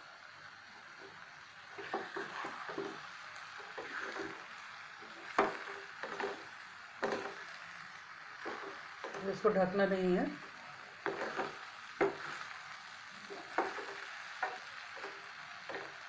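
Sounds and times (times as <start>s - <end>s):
food sizzling in pan: 0.0s - 16.0s.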